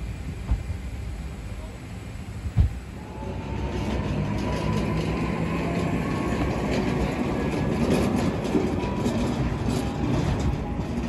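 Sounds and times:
machine rumble with high whine: 0.0s - 11.0s
thump: 2.5s - 2.8s.

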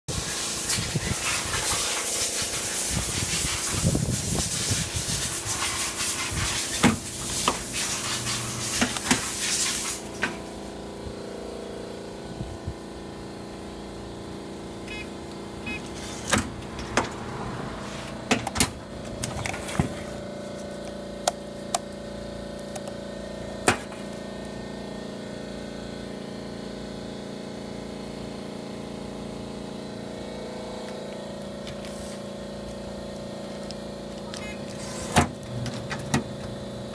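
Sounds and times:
strapping machine motor hum: 6.3s - 27.2s, 28.6s - 36.9s.

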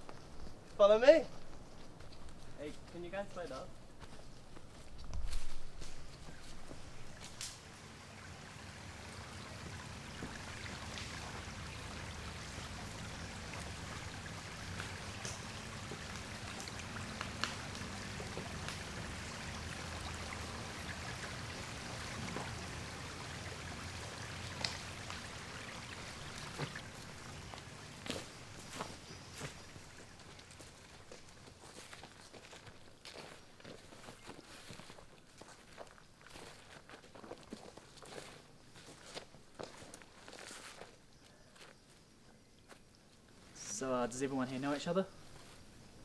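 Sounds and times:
running water: 6.0s - 32.8s
sharp ticks and snaps: 7.2s - 7.7s, 14.6s - 19.1s, 24.4s - 25.4s.

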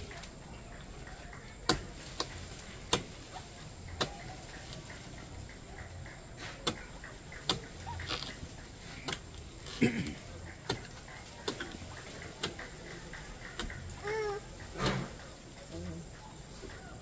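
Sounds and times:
knife striking palm wood: 1.6s - 3.1s, 3.9s - 4.3s, 10.6s - 11.7s.

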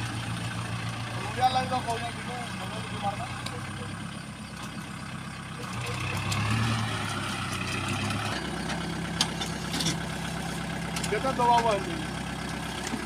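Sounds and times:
tractor diesel engine running: 0.0s - 13.0s
rotary tiller churning mud: 5.4s - 13.0s.

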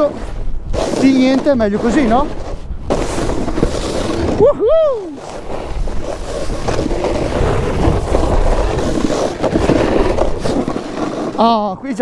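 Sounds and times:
snowboard scraping on slushy snow: 0.0s - 4.5s, 5.1s - 12.0s
wind rumble on microphone: 0.0s - 12.0s.

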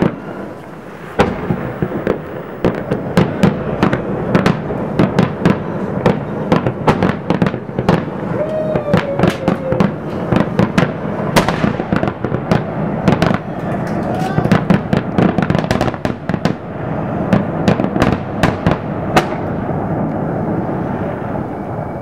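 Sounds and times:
low rumble: 0.0s - 6.4s
fireworks bangs and crackling: 0.0s - 22.0s.

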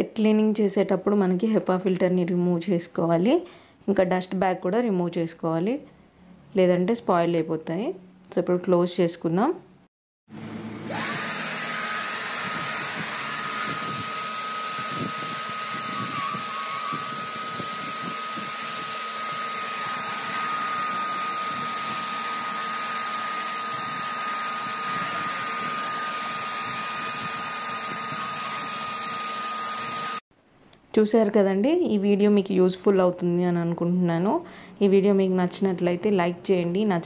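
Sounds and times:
vacuum cleaner whining: 10.3s - 30.2s.

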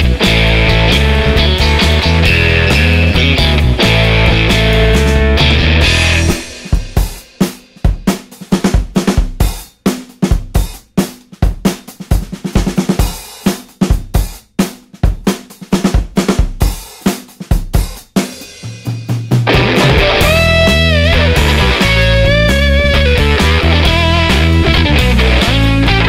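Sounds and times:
distorted electric guitar: 0.0s - 7.2s, 19.4s - 26.0s
drum kit playing fast beat: 0.0s - 26.0s.

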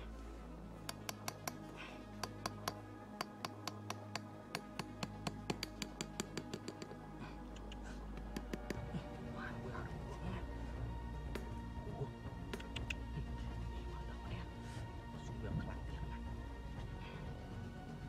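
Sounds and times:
hatchet tapping metal stake: 0.8s - 8.9s.

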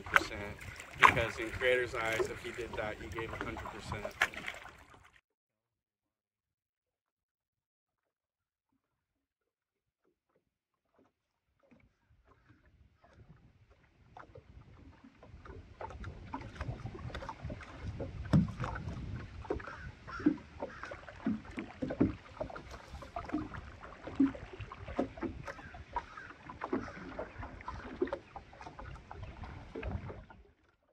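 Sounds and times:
paddles knocking against canoe hull: 0.0s - 5.1s, 10.8s - 30.7s
water splashing: 0.0s - 5.2s, 10.9s - 30.8s.

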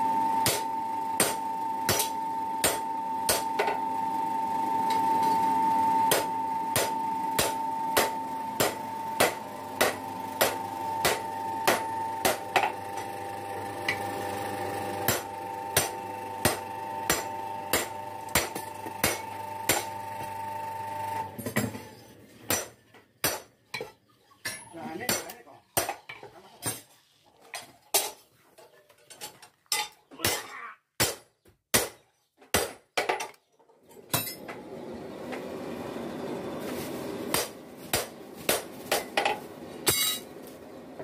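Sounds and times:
workshop motor hum: 0.0s - 23.6s, 33.8s - 41.0s
hammer striking steel on anvil: 0.4s - 3.7s, 6.1s - 12.7s, 15.1s - 19.9s, 22.5s - 23.5s, 39.9s - 40.3s.

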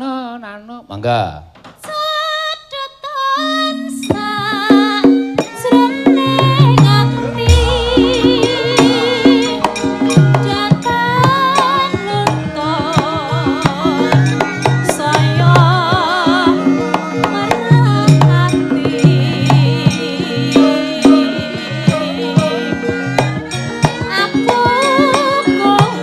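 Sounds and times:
high wavering melody: 3.3s - 26.0s
metallophone tones: 3.4s - 11.4s
hand drum strokes: 4.1s - 26.0s.

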